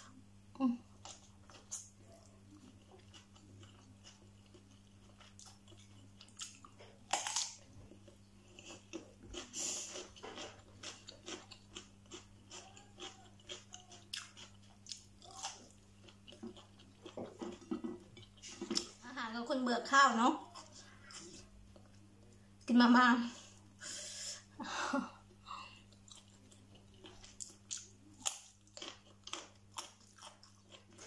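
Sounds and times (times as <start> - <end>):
small crunches: 5.1 - 17.7.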